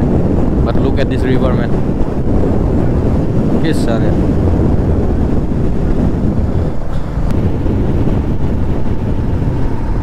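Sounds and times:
wind buffeting microphone: 0.0s - 10.0s
motorcycle engine: 4.2s - 10.0s.

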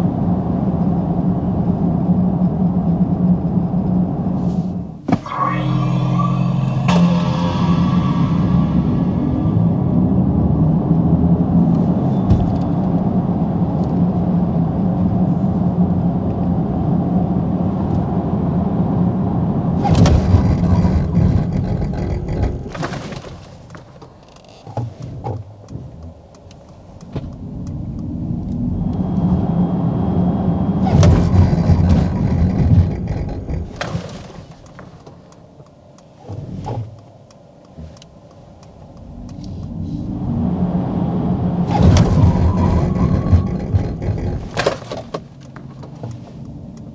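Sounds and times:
electric car drive hum: 0.0s - 46.9s
tyre and road noise: 0.0s - 46.9s
car braking hard: 4.4s - 10.8s, 19.7s - 23.7s, 27.5s - 35.0s, 39.2s - 46.4s.

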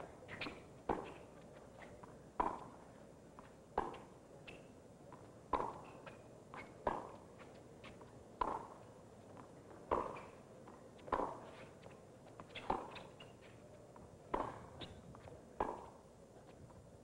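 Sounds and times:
tennis ball hit by racquets: 2.4s - 2.8s, 5.5s - 7.2s, 8.4s - 8.8s, 9.8s - 10.4s, 11.1s - 11.6s, 12.5s - 13.3s, 14.3s - 15.0s, 15.6s - 15.9s.

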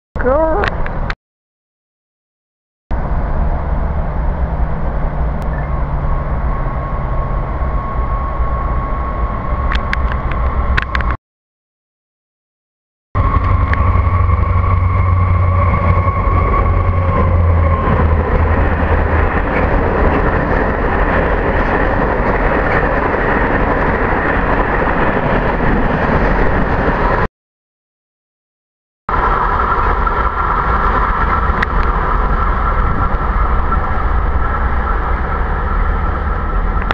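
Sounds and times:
diesel locomotive rumble: 2.9s - 11.2s, 13.2s - 27.3s, 29.1s - 36.9s
train wagons rolling by: 13.2s - 27.3s.

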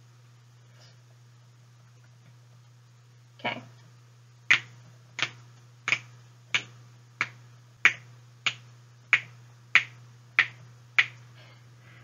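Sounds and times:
faint low hum: 0.0s - 12.0s
fingers snapping: 4.5s - 11.2s.

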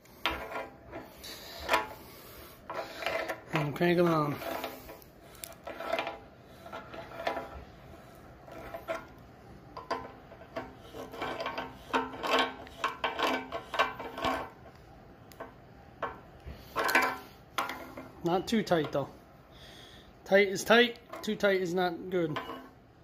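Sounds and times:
pliers scraping metal on metal: 2.6s - 7.6s, 8.4s - 9.2s, 9.8s - 14.7s, 22.3s - 22.8s.

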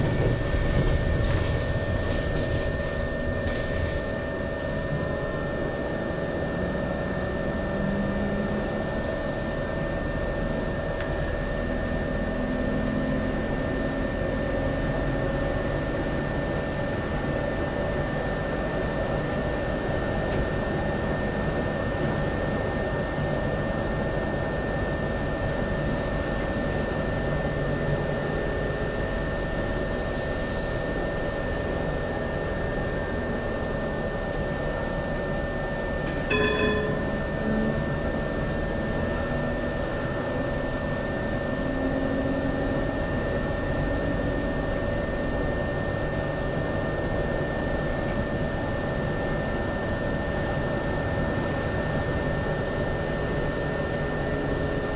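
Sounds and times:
tram running hum and whine: 0.0s - 54.9s
short ringing tone: 36.0s - 37.7s.

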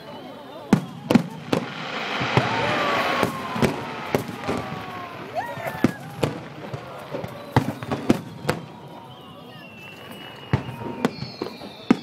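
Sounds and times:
falling firework whistle: 0.0s - 12.0s
firework shells bursting: 0.8s - 8.0s.

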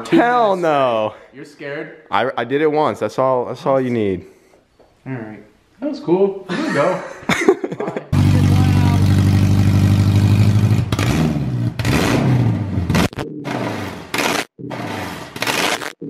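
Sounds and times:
car engine revving: 8.1s - 16.0s.

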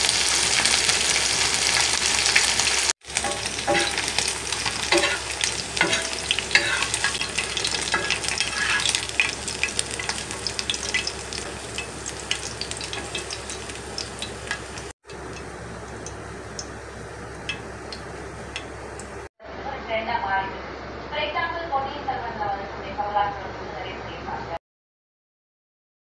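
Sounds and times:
prawns deep-frying in oil: 0.0s - 19.3s.

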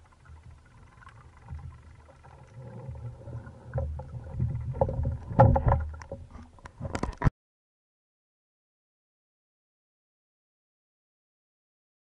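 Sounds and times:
underwater rushing water: 0.0s - 7.2s
underwater clicks and knocks: 0.0s - 7.3s.

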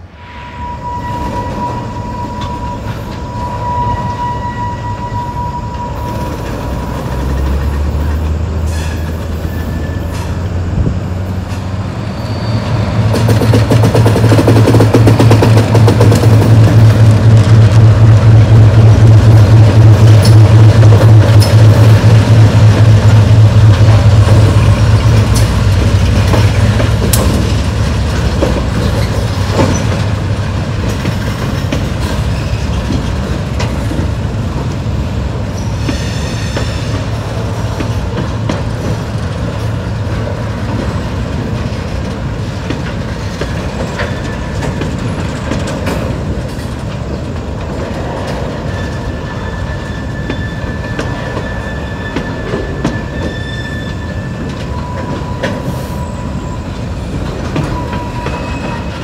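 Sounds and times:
wheel squeals: 0.4s - 10.4s, 12.0s - 13.0s, 35.5s - 38.5s, 43.1s - 45.8s, 48.0s - 59.0s
train wheels clacking over rails: 5.4s - 11.9s, 12.5s - 59.0s.

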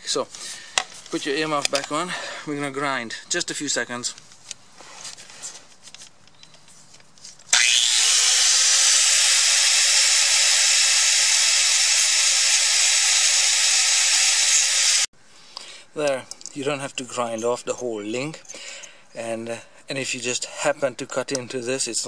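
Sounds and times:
faint handling sounds: 0.1s - 2.1s, 3.2s - 7.5s
angle grinder grinding metal: 7.5s - 15.1s.

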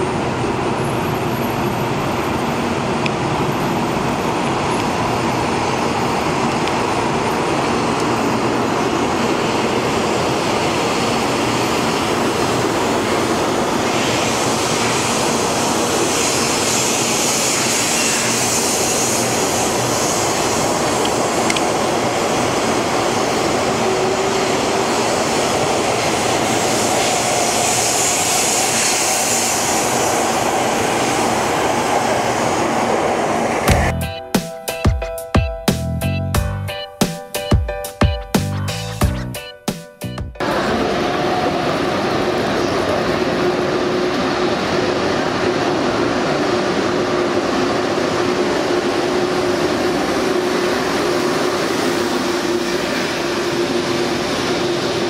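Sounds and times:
high-speed train rushing past: 0.0s - 55.0s
high hiss: 13.5s - 21.4s.

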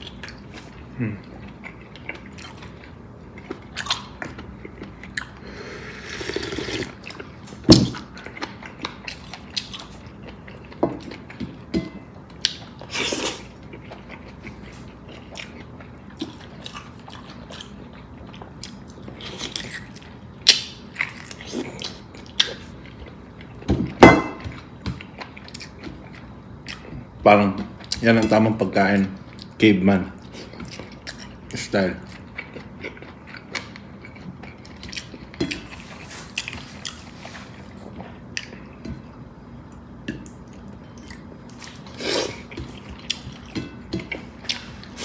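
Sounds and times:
person chewing and biting: 0.0s - 11.4s.

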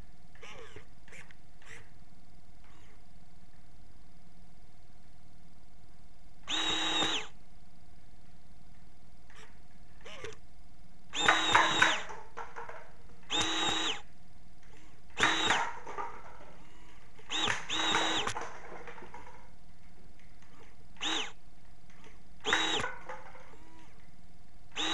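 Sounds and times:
small electric motors whirring: 6.5s - 7.4s, 11.1s - 12.1s, 13.2s - 14.1s, 14.8s - 15.8s, 17.3s - 18.4s, 20.4s - 24.0s.

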